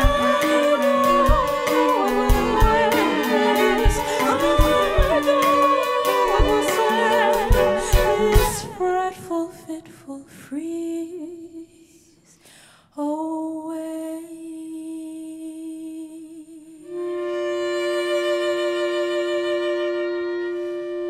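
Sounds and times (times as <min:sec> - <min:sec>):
sharp drum hits: 0:00.0 - 0:05.6
chamber music ensemble: 0:00.0 - 0:08.9
woman singing long note: 0:00.0 - 0:09.2.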